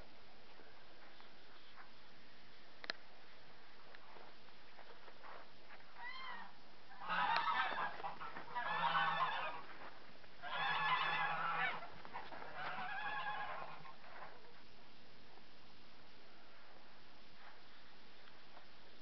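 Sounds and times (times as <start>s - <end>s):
farmyard animal calling: 6.0s - 14.6s.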